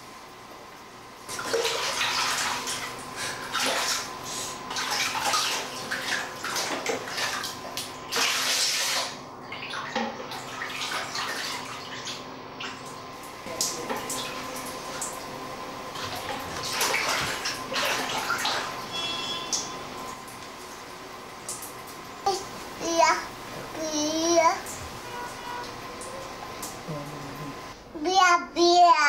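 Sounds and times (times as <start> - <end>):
water splashing in a basin: 1.3 - 15.3, 15.9 - 22.0.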